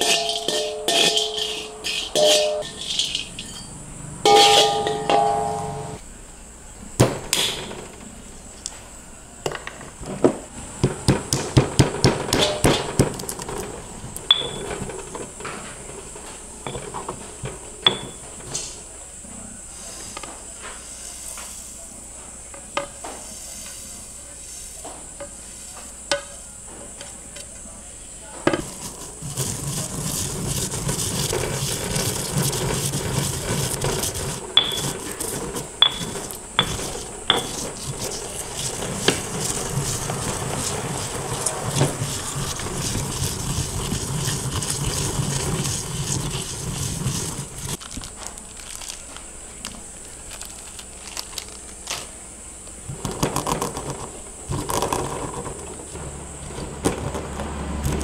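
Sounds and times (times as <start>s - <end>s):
metal utensil clinking against pot: 0.0s - 3.7s, 4.3s - 5.8s
steady noise: 0.0s - 7.0s, 28.0s - 47.9s.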